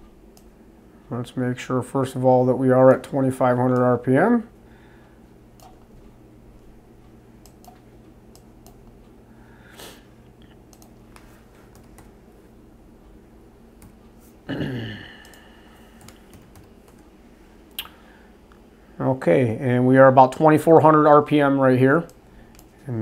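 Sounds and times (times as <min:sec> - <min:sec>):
steady low hum: 0:00.0 - 0:23.0
mouse clicks: 0:05.6 - 0:05.9, 0:10.7 - 0:12.1
keyboard typing: 0:05.6 - 0:06.1, 0:07.4 - 0:09.0, 0:10.7 - 0:12.2, 0:15.2 - 0:17.1.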